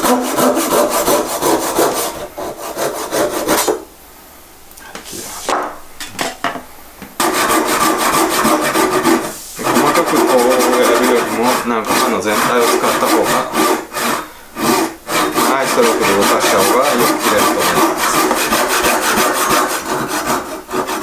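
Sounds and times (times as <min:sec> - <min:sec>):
hand saw cutting branch: 0:07.2 - 0:21.0.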